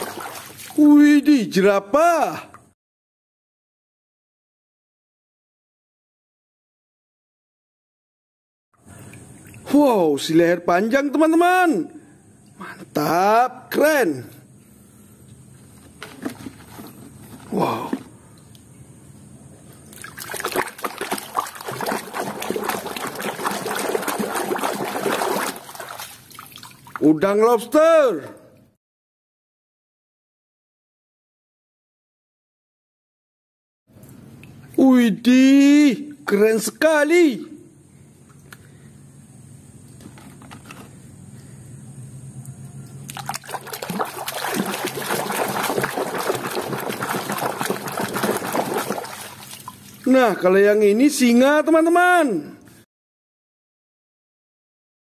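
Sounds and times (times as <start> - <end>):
water splashing in plastic basin: 0.0 - 0.9, 8.8 - 9.7, 19.8 - 27.1, 43.0 - 50.1.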